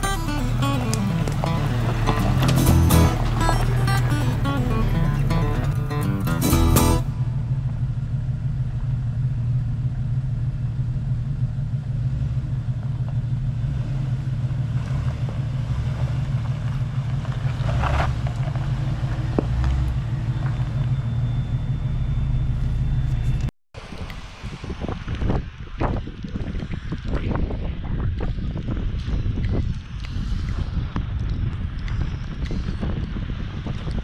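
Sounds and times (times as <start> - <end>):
off-road vehicle engine rumble: 0.0 - 34.0.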